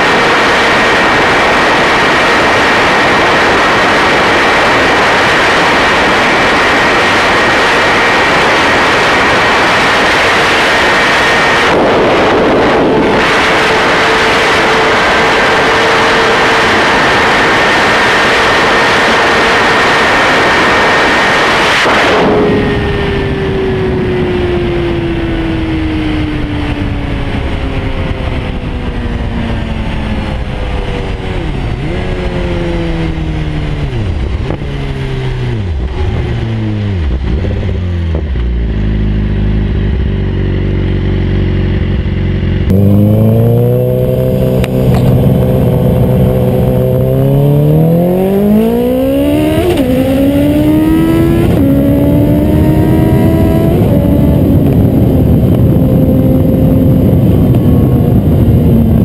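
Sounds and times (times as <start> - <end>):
motorcycle engine: 0.0 - 59.0
wind rush: 0.0 - 59.0.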